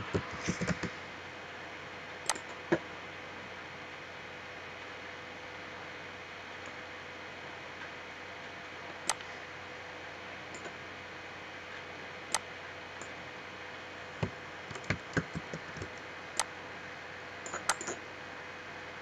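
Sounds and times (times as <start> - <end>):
steady hiss: 0.0 - 4.1
mouse and keyboard clicks: 0.1 - 1.0, 2.3 - 2.6, 17.4 - 18.0.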